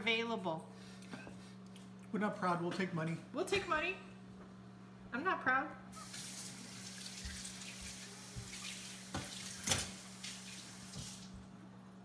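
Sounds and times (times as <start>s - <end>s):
kitchen tap running into sink: 6.0s - 11.4s.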